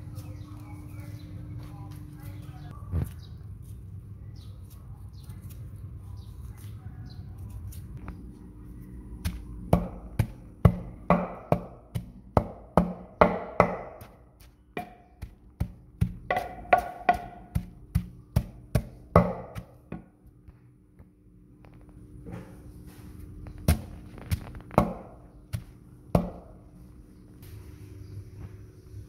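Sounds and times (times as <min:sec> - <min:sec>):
wooden pestle pounding in mortar: 0:09.2 - 0:20.1, 0:23.6 - 0:26.6.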